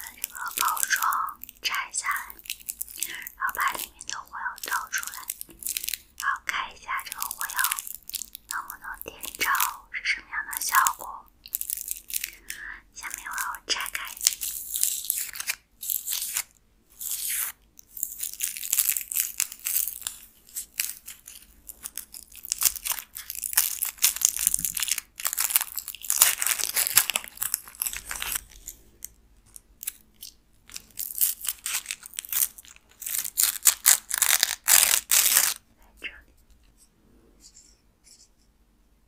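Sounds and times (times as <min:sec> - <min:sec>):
foil and paper crinkling: 0:00.0 - 0:09.8, 0:10.7 - 0:28.8, 0:29.5 - 0:35.6.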